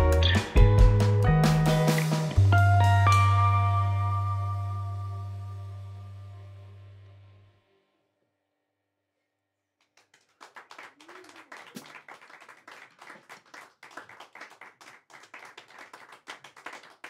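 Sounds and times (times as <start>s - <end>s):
small audience clapping: 1.0s - 2.4s, 9.8s - 17.0s.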